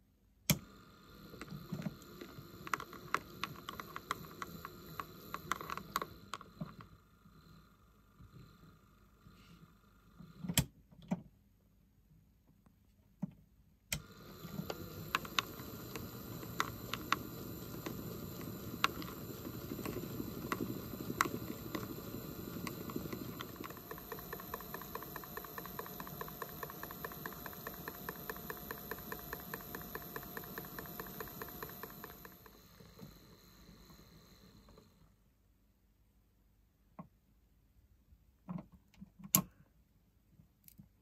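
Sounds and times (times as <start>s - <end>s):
toy washing machine motor whirring: 0.0s - 10.6s, 14.0s - 35.2s
clicks and ticking: 1.3s - 6.9s, 13.9s - 34.0s
faint high whine: 14.0s - 35.1s.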